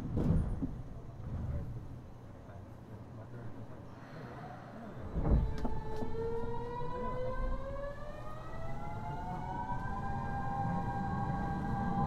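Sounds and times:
low rumble of wheels: 4.9s - 12.0s.

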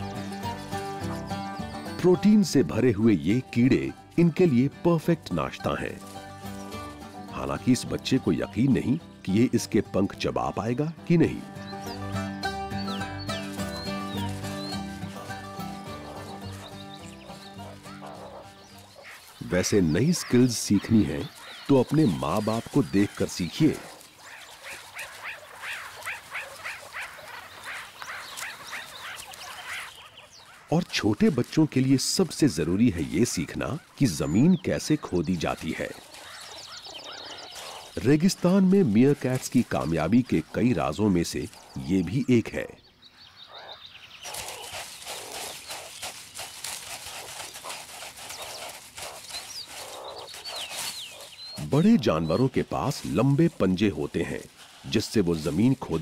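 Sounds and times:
meerkat pups chirping: 11.5s - 31.5s, 32.3s - 42.4s, 43.0s - 56.0s
claws scratching in sand: 13.3s - 31.9s, 35.4s - 40.4s, 44.2s - 56.0s.

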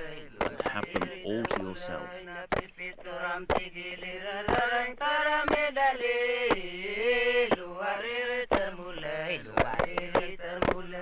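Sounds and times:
sharp percussive hits: 0.0s - 2.7s
chanted vocal line: 0.0s - 11.0s.

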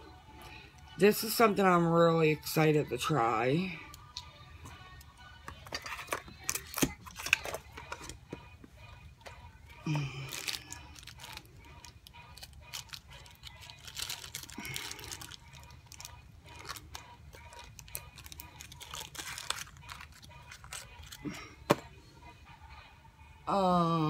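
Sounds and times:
packaging rustling and crinkling: 5.7s - 8.2s, 10.2s - 21.2s.

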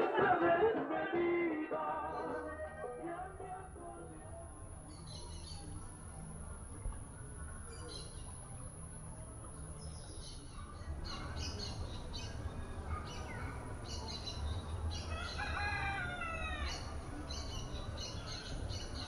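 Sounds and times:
small birds chirping: 3.3s - 19.0s
rooster crowing: 14.9s - 17.0s.

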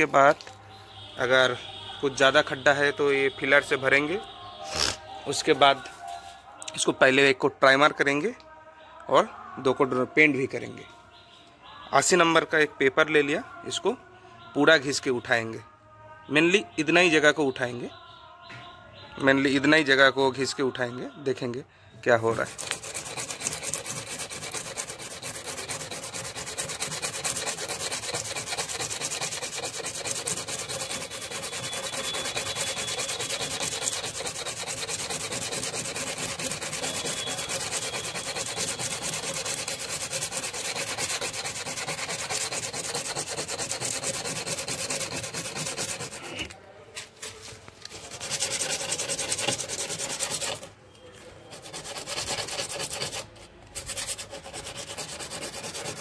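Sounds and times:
sandpaper rubbing on metal: 22.3s - 56.0s.

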